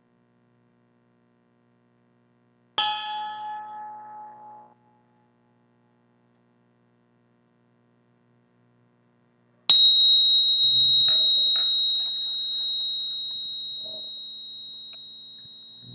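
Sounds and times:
meditation bell ringing: 2.8s - 5.3s, 9.7s - 15.9s.

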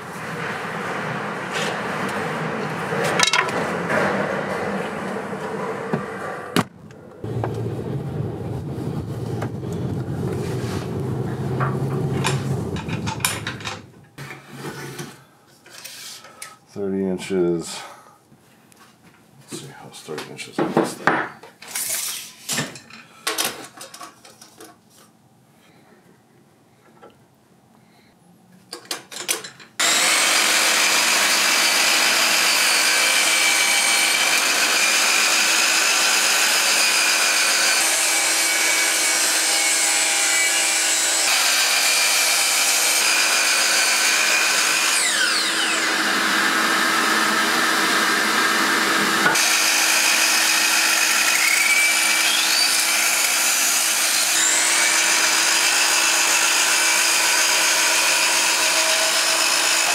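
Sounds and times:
constant hum: 0.0s - 14.3s
miter saw cutting boards: 0.2s - 7.8s, 29.8s - 59.9s.

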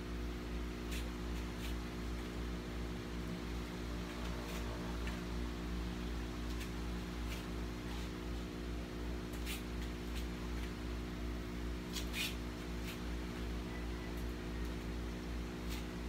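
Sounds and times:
electric fan humming: 0.0s - 16.0s
bare feet scuffing on mat: 6.4s - 8.5s, 9.4s - 10.8s.

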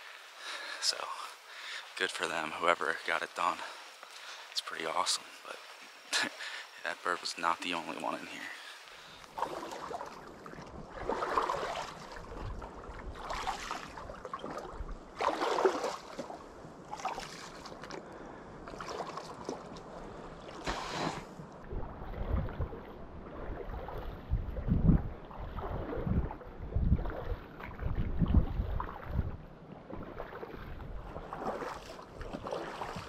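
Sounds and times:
footsteps splashing through water: 8.8s - 18.0s, 18.6s - 33.0s
wind rumbling on microphone: 9.4s - 33.0s.

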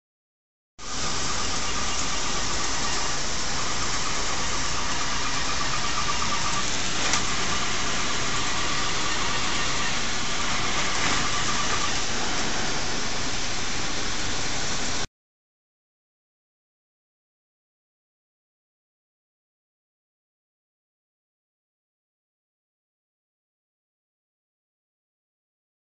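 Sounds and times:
air blower rushing: 0.8s - 15.1s
faint high whine: 0.8s - 15.1s.

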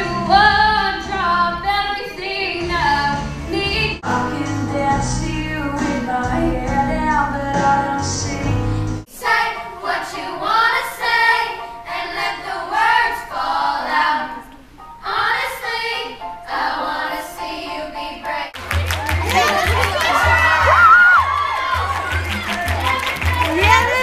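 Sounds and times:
girls singing together: 0.0s - 18.6s
piano accompaniment: 0.0s - 24.0s.

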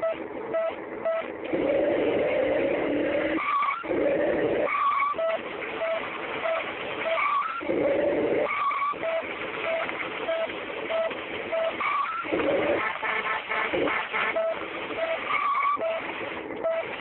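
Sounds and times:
engine revving: 1.4s - 5.3s.

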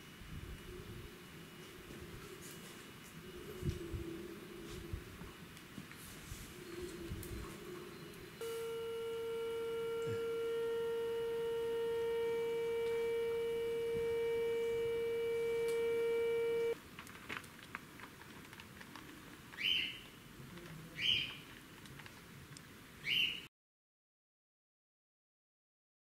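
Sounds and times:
kettle whistling: 8.4s - 16.8s.

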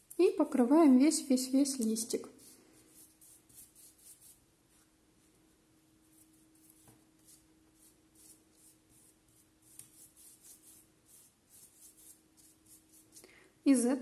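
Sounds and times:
faint steady hum: 0.0s - 14.0s
brush swishing on paper: 2.2s - 5.4s, 6.0s - 13.2s.

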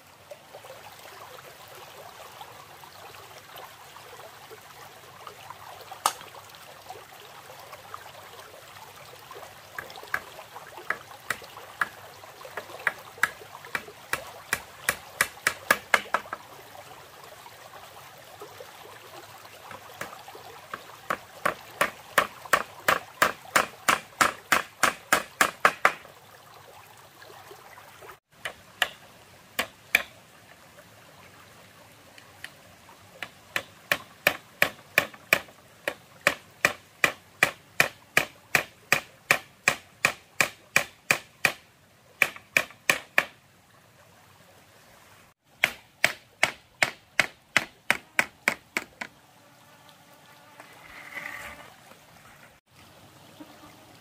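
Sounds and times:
stream running: 0.0s - 54.0s
hammer driving nails into bamboo: 21.8s - 26.0s, 33.6s - 41.6s, 42.2s - 43.3s, 45.6s - 49.1s.

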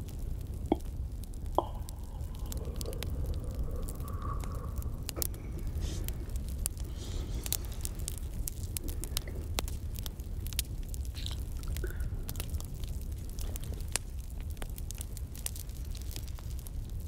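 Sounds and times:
campfire crackling and popping: 0.0s - 17.0s
soft close-up noises: 0.0s - 17.0s
steady low rumble: 0.0s - 17.0s.

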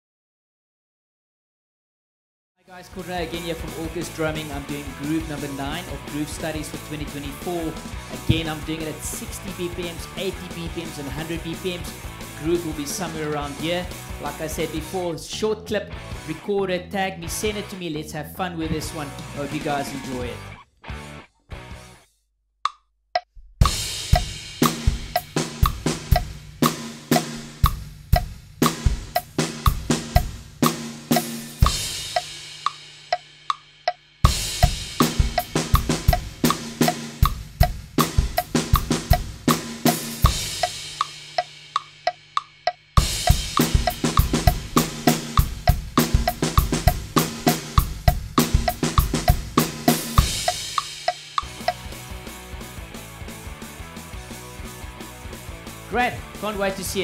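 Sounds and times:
drum kit playing groove: 2.8s - 16.5s, 18.6s - 20.5s, 23.6s - 57.0s
cymbal ringing: 50.2s - 51.9s.

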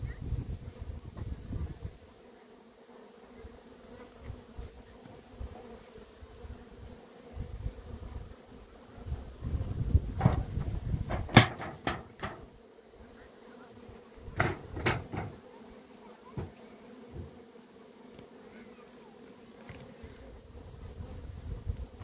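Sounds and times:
bees buzzing: 0.0s - 22.0s
wooden knocks: 10.2s - 12.5s, 14.4s - 15.4s.

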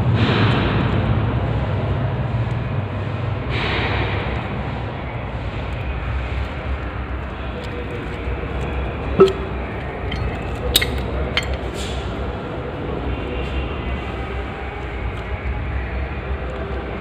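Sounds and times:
metal chain clanking on sprocket: 10.1s - 11.7s.

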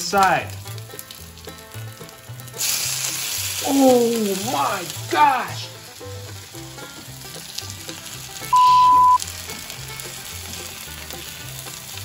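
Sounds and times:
pancakes sizzling in oil: 0.1s - 12.0s
loud pure-tone beep: 8.5s - 9.2s.

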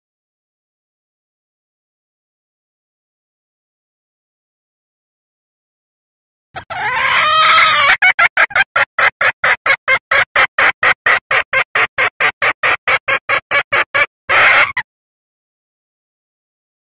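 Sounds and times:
hen calling: 6.6s - 14.8s
rapid short clucks: 7.6s - 14.8s.

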